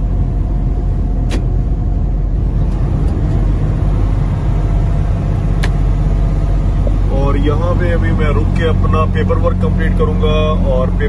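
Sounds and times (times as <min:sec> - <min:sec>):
truck engine and road noise: 0:00.0 - 0:11.0.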